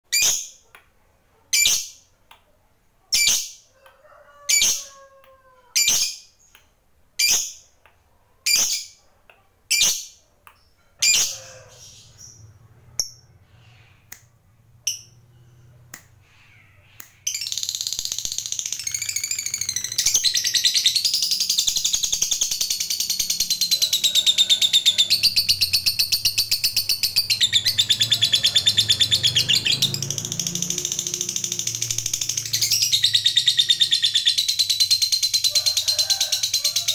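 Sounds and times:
lovebird rapid chatter: 17.2 - 36.9.

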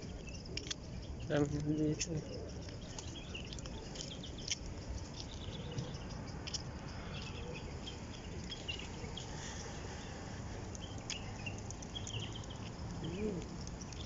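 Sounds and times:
pigeons chirping: 0.0 - 14.0
wing flutters and clicks: 10.6 - 14.0.

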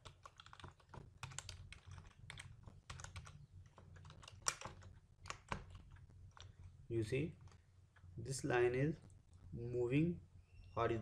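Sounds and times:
keyboard typing clicks: 0.0 - 6.5.

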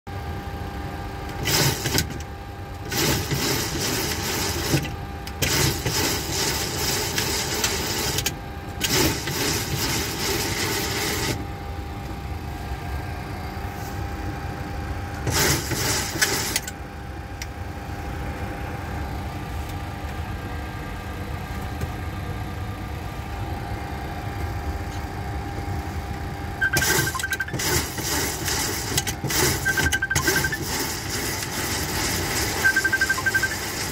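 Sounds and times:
steady background hum: 0.1 - 33.9
trim wheels spinning: 26.6 - 33.9.

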